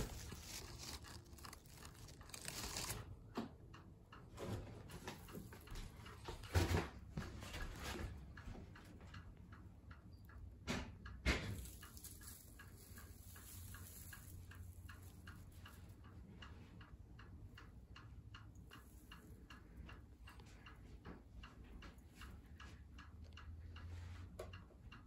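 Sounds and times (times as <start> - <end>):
faint even ticking: 8.3 - 25.0.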